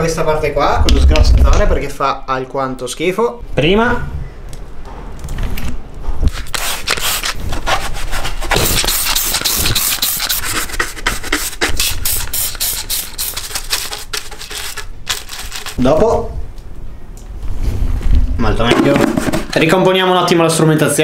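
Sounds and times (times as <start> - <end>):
brush scrubbing plastic: 6.5 - 15.8.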